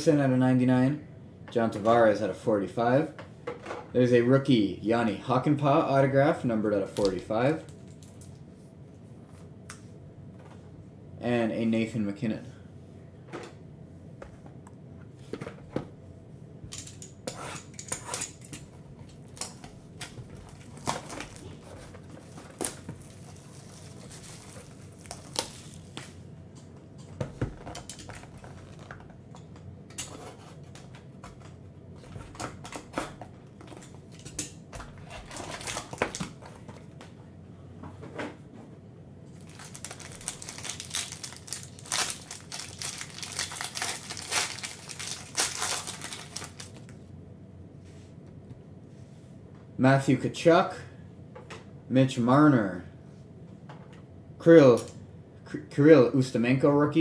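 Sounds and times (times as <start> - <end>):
wrapper crinkling: 19.1 - 26.2, 35.2 - 36.6, 39.3 - 47.0.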